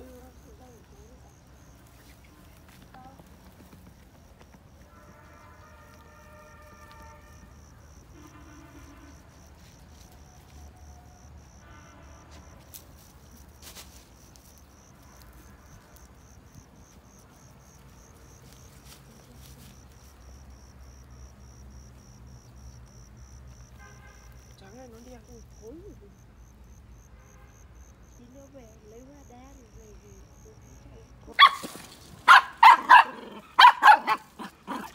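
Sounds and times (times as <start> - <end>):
cricket chirping: 0.0 - 34.9.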